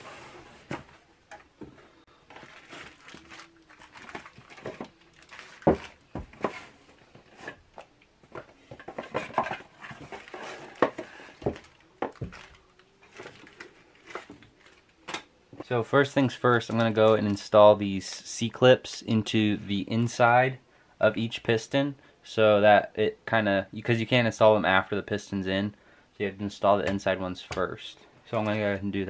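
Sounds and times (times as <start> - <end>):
cardboard and plastic rustling: 0.0 - 15.2.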